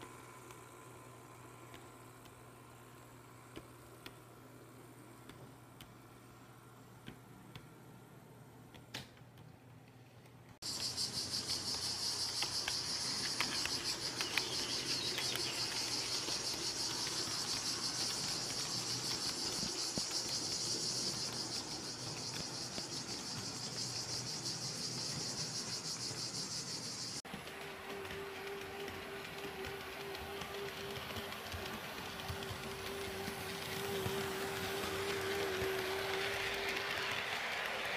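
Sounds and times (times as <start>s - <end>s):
model train motor whining: 10.6s - 26.1s, 27.3s - 37.9s
train wheels clicking: 10.6s - 37.9s.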